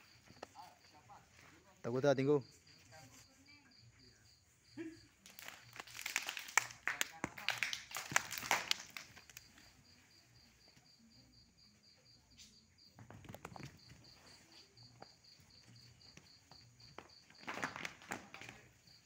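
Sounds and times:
cricket chirping: 0.0s - 19.0s
faint knocks and scuffs: 12.2s - 18.9s.

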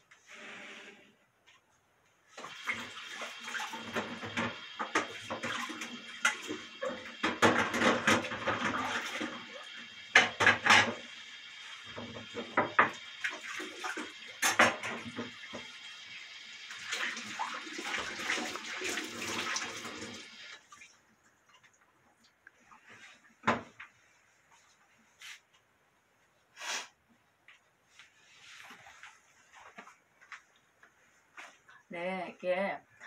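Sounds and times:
water running and splashing: 2.3s - 23.2s.

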